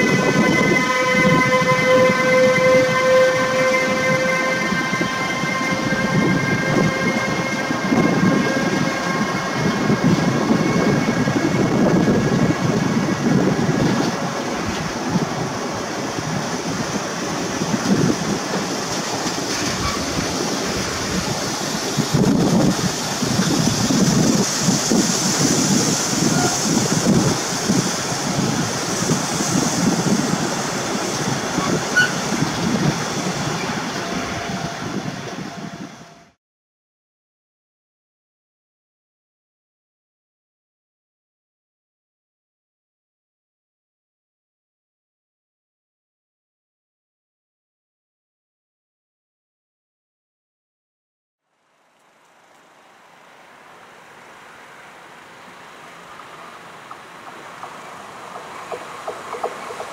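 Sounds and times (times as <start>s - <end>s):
steel wheels rumbling on rail: 0.0s - 36.4s, 52.0s - 59.9s
high hiss: 18.2s - 33.9s.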